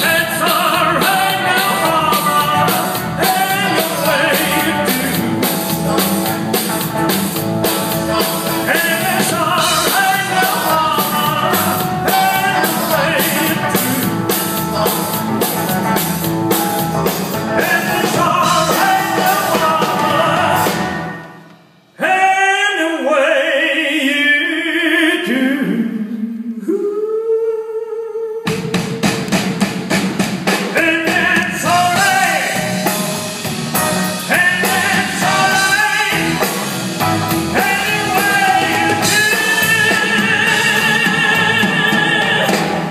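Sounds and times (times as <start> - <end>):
men singing: 0.0 - 6.1, 7.8 - 14.9, 17.5 - 21.2, 30.8 - 33.0, 34.2 - 42.9
live rock and roll band: 0.0 - 22.9, 28.4 - 42.9.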